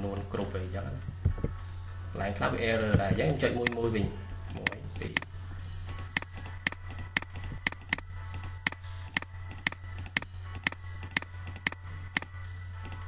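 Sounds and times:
low steady hum: 0.0s - 13.0s
computer mouse clicking: 5.9s - 13.0s.

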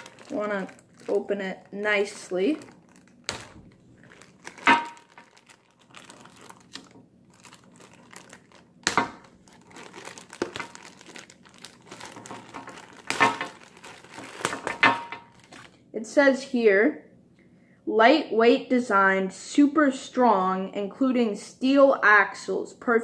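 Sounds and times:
cardboard packaging being opened: 0.0s - 15.8s
plastic bag crinkling: 0.0s - 15.9s
sharp plastic crackles: 0.0s - 15.9s.

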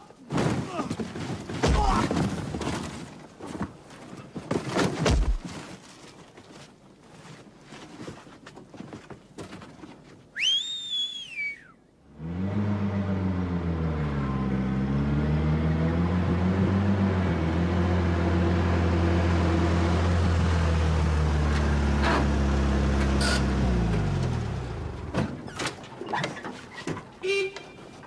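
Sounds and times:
knocks and thuds: 0.3s - 3.2s, 4.5s - 5.7s
rising and falling whistle: 10.4s - 11.8s.

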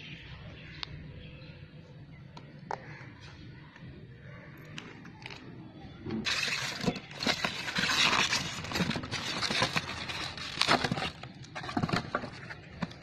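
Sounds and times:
foam packing rubbing and crackling: 6.2s - 13.0s.

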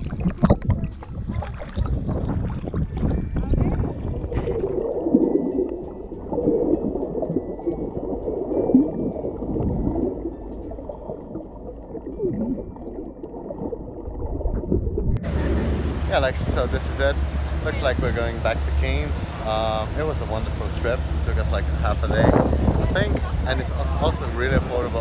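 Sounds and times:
underwater gurgling and bubbling: 0.0s - 18.7s
open-air rumble: 15.1s - 25.0s.

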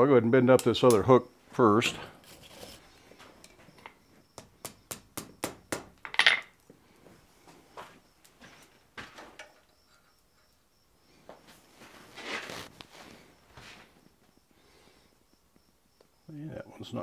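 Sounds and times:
hammer scraping on anvil: 2.1s - 3.0s.

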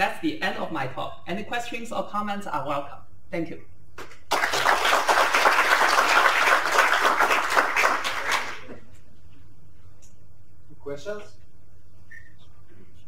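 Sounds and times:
audience applauding: 4.0s - 8.7s.

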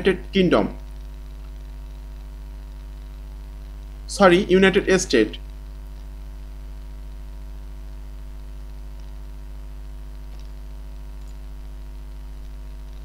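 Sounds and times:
background hiss: 0.0s - 13.0s
electrical mains hum: 0.0s - 13.0s
faint clicks: 10.1s - 11.5s.

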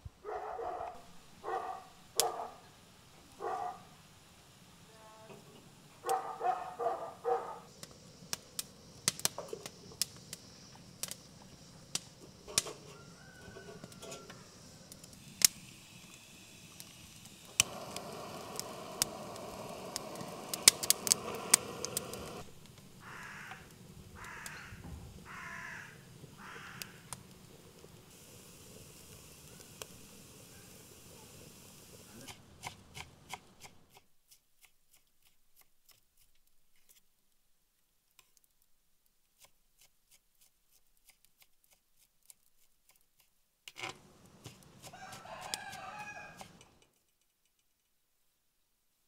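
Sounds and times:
dog barking: 0.2s - 2.7s, 3.4s - 4.0s, 6.0s - 7.7s
butane torch hissing: 0.8s - 33.7s, 43.9s - 46.7s
twigs knocking in stove: 7.8s - 15.6s, 17.5s - 24.7s, 43.6s - 46.9s
sharp clicks: 17.5s - 24.6s
crow cawing: 23.0s - 27.1s.

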